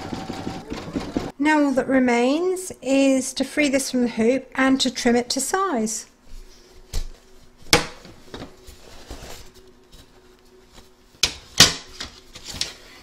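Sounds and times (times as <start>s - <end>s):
fabric rustling: 8.5s - 11.2s.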